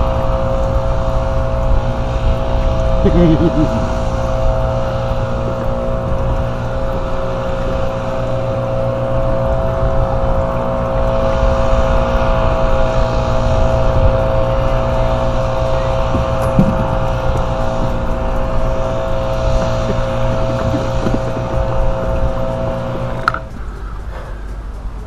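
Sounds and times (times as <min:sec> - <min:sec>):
boat motor running: 0:00.0 - 0:25.0.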